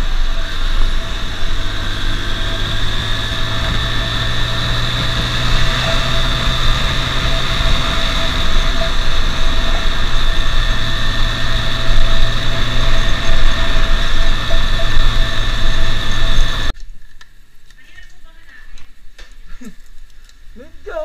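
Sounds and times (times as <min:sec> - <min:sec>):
motorcycle engine running: 0:00.0 - 0:16.8.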